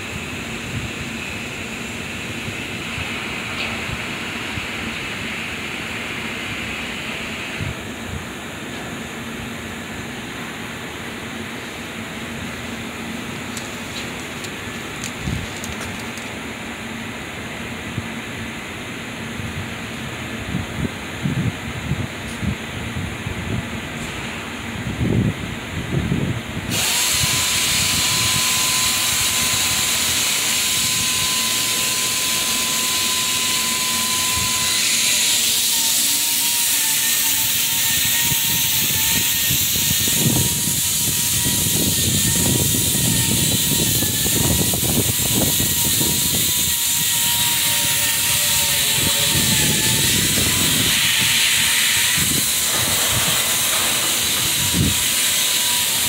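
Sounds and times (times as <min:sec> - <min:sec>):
loud steady hissing: 0:00.0 - 0:22.0, 0:22.8 - 0:56.0
thin wavering whine: 0:27.2 - 0:56.0.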